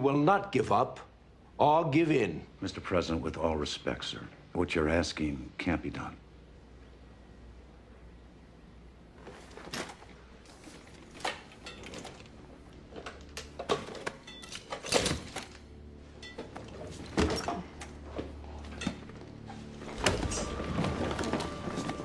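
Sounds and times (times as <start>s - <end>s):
low music drone: 14.8s - 22.0s.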